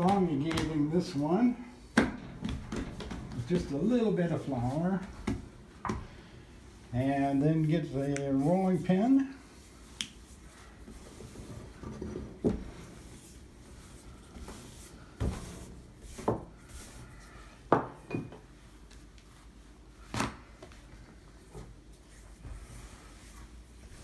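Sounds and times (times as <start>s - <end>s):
rolling pin rolling dough: 0.0s - 6.2s, 6.9s - 17.5s.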